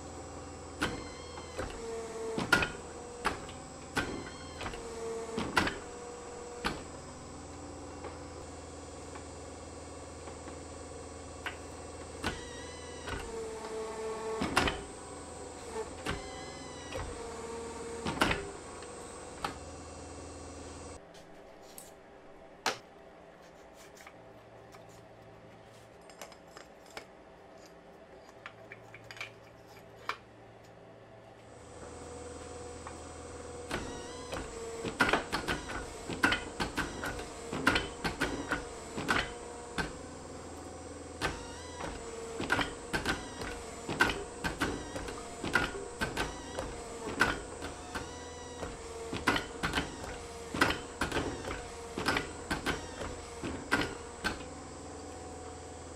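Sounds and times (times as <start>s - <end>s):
forging press motor humming: 0.0s - 21.0s, 31.4s - 55.9s.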